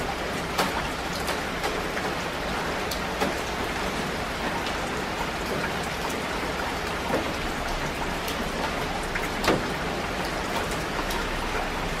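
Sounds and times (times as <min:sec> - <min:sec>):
steady rain falling: 0:00.0 - 0:12.0
raindrop hits: 0:00.3 - 0:04.6, 0:07.0 - 0:12.0.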